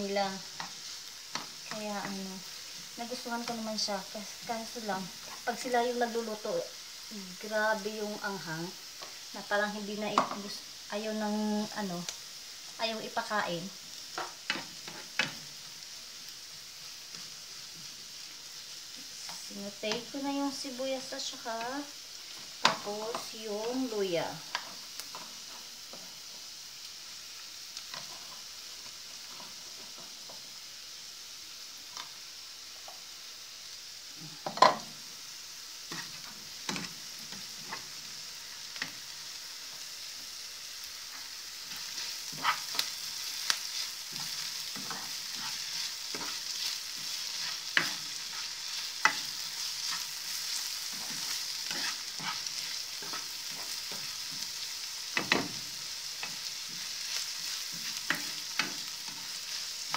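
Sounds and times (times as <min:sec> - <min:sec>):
onion sizzling in a pan: 0:00.0 - 0:59.9
spatula scraping and knocking pan: 0:41.1 - 0:55.6.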